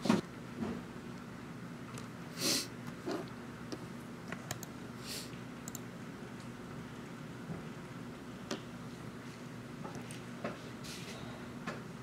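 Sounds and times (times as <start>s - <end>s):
person sniffing: 2.4s - 2.7s, 5.0s - 5.3s
keyboard and mouse clicks: 4.3s - 4.7s.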